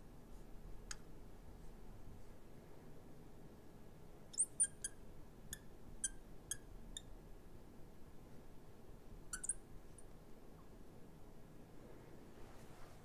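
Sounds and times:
marker squeaking on glass: 0:04.3 - 0:07.1, 0:09.3 - 0:09.6.

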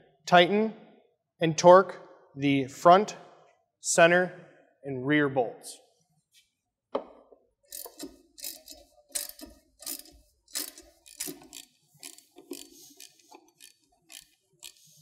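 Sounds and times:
ratchet wrench clicking: 0:07.7 - 0:15.0.

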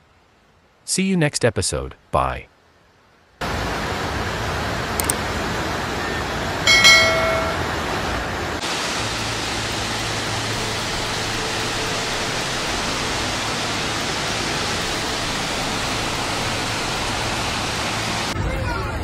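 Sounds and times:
floodwater rushing roar: 0:03.4 - 0:18.4.

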